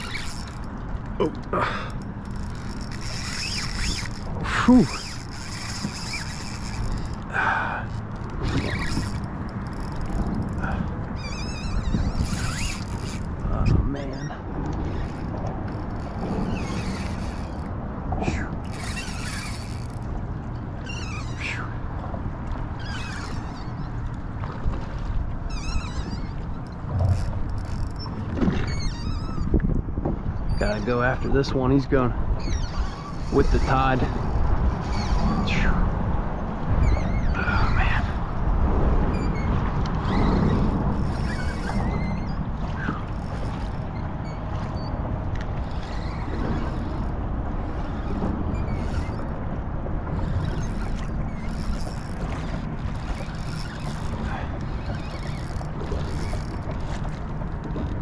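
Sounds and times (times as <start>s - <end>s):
fishing reel clicking: 0.0s - 0.8s, 1.9s - 7.3s, 7.9s - 13.4s, 18.3s - 20.1s, 40.1s - 42.0s, 48.8s - 49.3s, 50.2s - 56.7s
fishing reel drag buzzing: 0.0s - 1.0s, 1.7s - 13.5s, 14.1s - 17.7s, 18.3s - 20.2s, 20.8s - 21.7s, 22.8s - 23.9s, 25.5s - 29.5s, 39.1s - 44.9s, 45.6s - 47.1s, 47.7s - 49.4s, 50.1s - 57.0s
faint high squeaks: 0.0s - 20.1s, 20.8s - 21.8s, 22.7s - 24.2s, 25.4s - 29.7s, 30.4s - 31.5s, 32.3s - 35.8s, 36.7s - 38.2s, 39.1s - 49.4s, 50.0s - 58.0s
water noise: 0.0s - 58.0s
wind: 0.0s - 58.0s.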